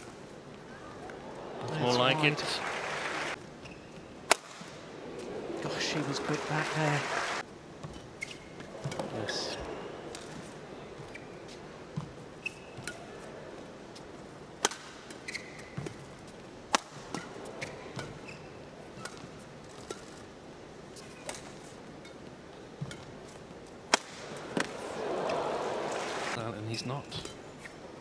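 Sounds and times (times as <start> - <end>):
court shoes squeaking: 3.4 - 4.3, 7.8 - 13.4, 14.6 - 16.4, 17.0 - 20.3, 21.0 - 23.5, 24.2 - 28.0.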